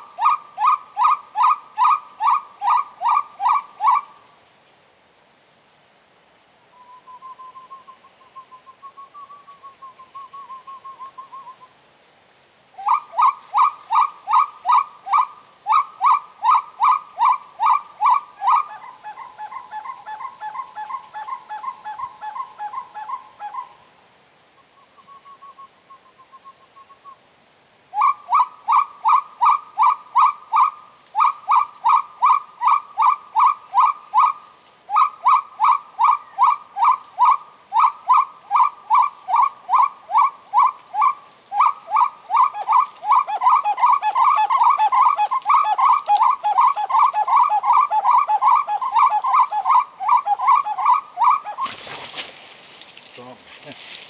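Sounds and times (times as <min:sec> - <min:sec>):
bird whistled calls: 0:06.7 - 0:11.7, 0:24.8 - 0:27.2, 0:27.9 - 0:51.9.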